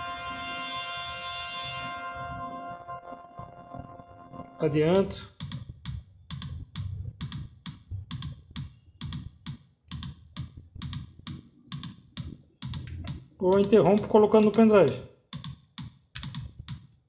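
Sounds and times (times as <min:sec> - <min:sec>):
music with clicky drum beat: 0:04.9 - 0:14.8.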